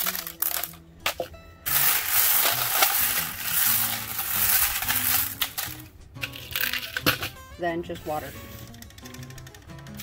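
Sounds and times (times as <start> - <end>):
glass marbles clattering: 0.0 - 0.8, 1.7 - 7.3.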